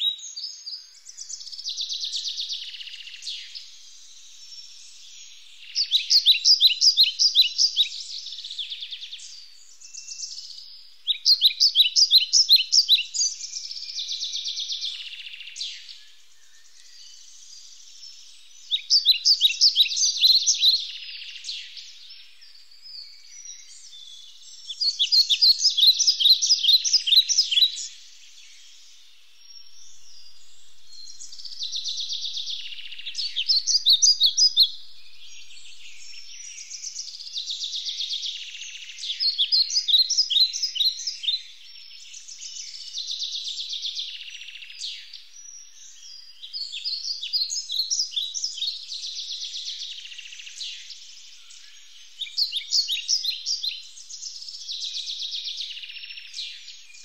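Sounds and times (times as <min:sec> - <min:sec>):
soft bird chatter: 0:00.0 - 0:57.0
songbird trilling: 0:24.6 - 0:28.1, 0:29.4 - 0:41.4.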